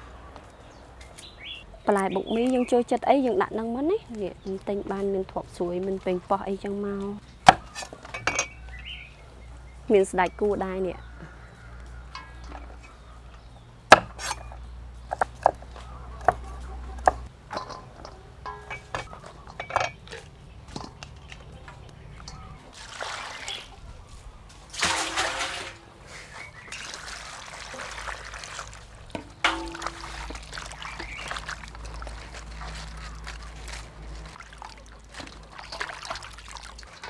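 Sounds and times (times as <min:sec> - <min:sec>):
water splashing in a bowl: 0:22.2 - 0:23.8, 0:24.7 - 0:37.0.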